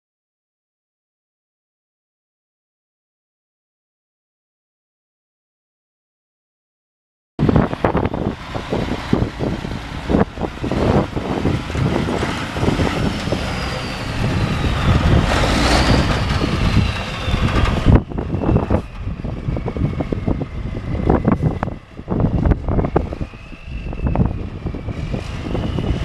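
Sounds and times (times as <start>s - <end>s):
diesel truck engine running: 7.4s - 26.0s
engine knocks and clatter: 7.4s - 26.0s.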